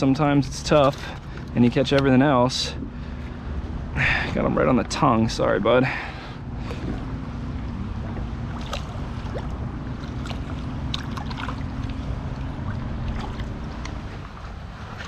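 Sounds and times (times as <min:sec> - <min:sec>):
steady low rumble: 0:00.0 - 0:15.0
water sloshing and splashing: 0:00.4 - 0:02.0, 0:05.9 - 0:15.0.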